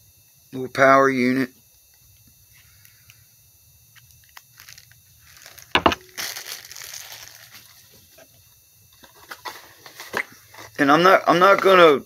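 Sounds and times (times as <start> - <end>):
packaging rustling: 4.3 - 8.0
hard item knocking on table: 5.8 - 6.0.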